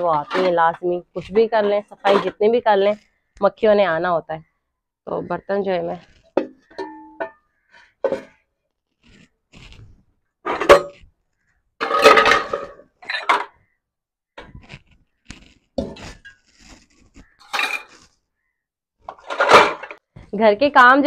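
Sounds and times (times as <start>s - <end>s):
metal pots clanking: 1.4s - 2.6s, 6.3s - 8.4s, 11.8s - 13.6s, 17.4s - 18.0s, 19.1s - 20.0s.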